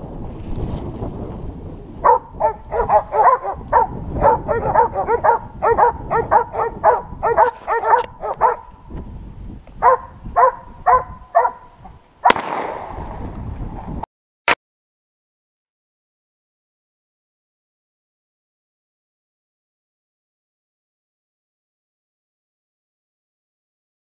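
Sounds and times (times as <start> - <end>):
hunting dogs barking: 2.0 - 8.9, 9.8 - 12.4
single sharp crack: 12.3 - 13.2.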